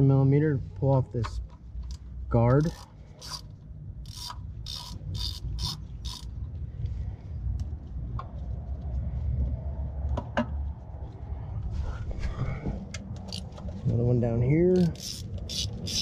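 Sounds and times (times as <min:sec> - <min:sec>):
socket ratchet clicking: 0:02.5 - 0:06.3, 0:13.2 - 0:13.5, 0:14.8 - 0:16.0
low rumble: 0:03.1 - 0:15.8.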